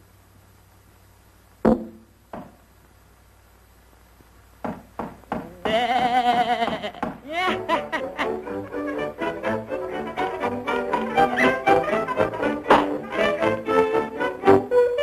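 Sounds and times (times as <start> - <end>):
soundtrack hiss: 0.0 - 15.0
wavering cartoon laugh: 5.8 - 8.9, 11.1 - 12.7
hard thump: 12.7 - 13.0.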